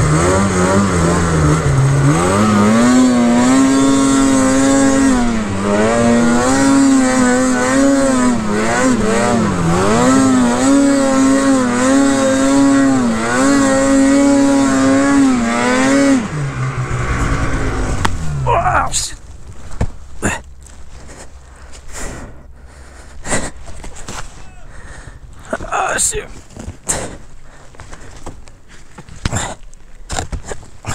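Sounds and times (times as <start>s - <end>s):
snowmobile engine revving: 0.0s - 19.6s.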